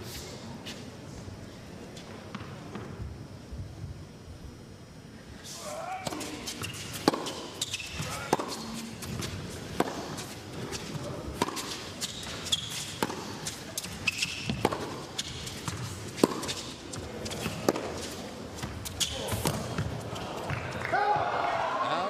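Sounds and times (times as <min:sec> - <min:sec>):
shoe squeaks: 0:05.6 - 0:08.9, 0:12.0 - 0:13.1, 0:13.8 - 0:14.6, 0:18.8 - 0:19.4
ball bouncing on court: 0:06.0 - 0:10.0, 0:13.8 - 0:18.0, 0:18.6 - 0:20.7
racquets striking ball: 0:06.0 - 0:20.7.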